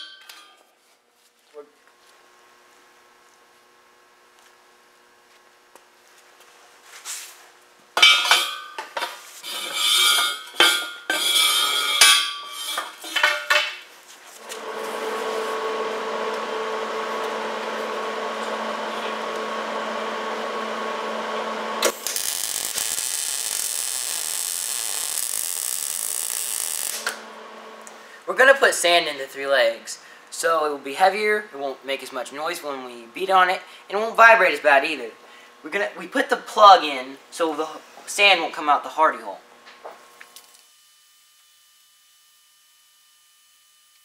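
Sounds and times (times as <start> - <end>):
steady hum: 7.8 - 26.2, 26.8 - 30.4
steel parts clanking: 8.0 - 13.8
welding arc crackling: 20.3 - 28.0.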